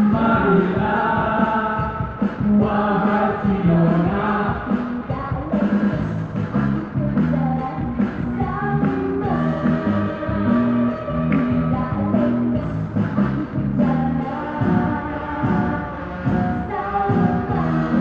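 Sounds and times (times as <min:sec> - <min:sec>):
backing music with beat: 0:00.0 - 0:18.0
woman singing pop-rock song: 0:04.3 - 0:18.0.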